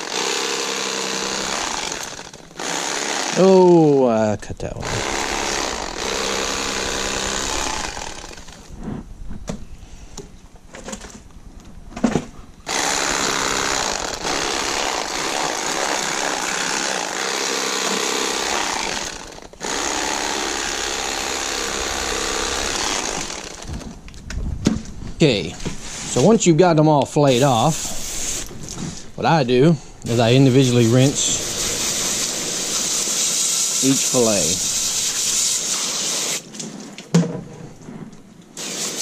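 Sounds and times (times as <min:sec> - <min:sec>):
electric fillet knife buzzing: 0:00.0 - 0:03.4, 0:04.8 - 0:08.7, 0:12.7 - 0:23.9, 0:30.1 - 0:35.3.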